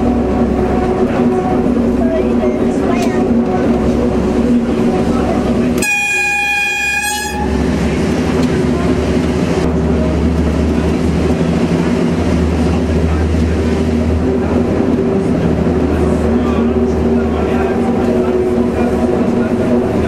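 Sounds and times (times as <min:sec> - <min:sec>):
train engine droning: 0:00.0 - 0:20.0
train horn: 0:00.6 - 0:02.0, 0:04.7 - 0:07.7.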